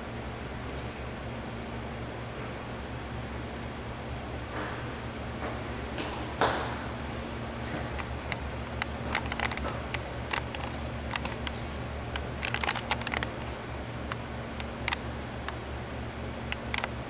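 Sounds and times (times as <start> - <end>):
steady low hum: 0.0 - 17.0
sharp short clicks: 8.0 - 13.4.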